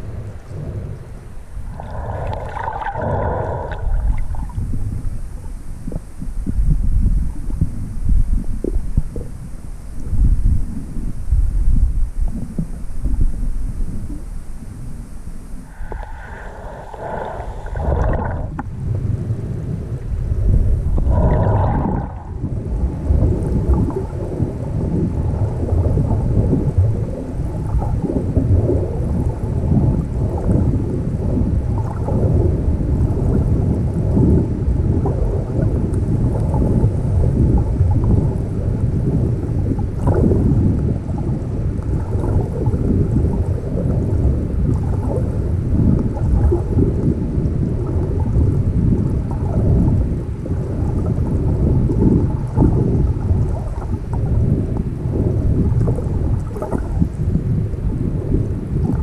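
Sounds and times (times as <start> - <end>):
water sloshing against camera: 0.0 - 9.4, 15.6 - 18.9.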